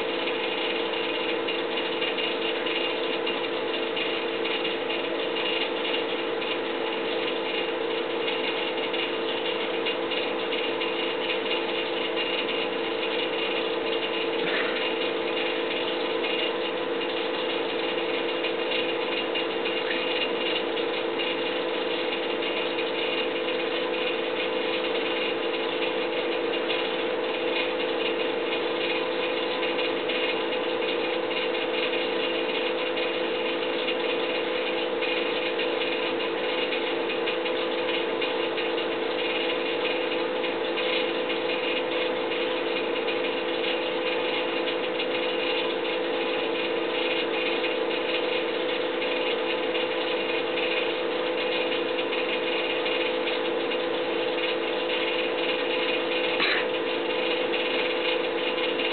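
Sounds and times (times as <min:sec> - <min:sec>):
steady mechanical drone: 0:00.0 - 0:58.9.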